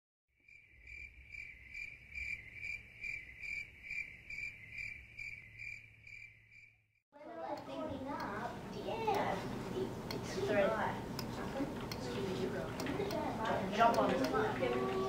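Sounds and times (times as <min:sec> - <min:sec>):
cricket chirping: 0:00.4 - 0:06.8.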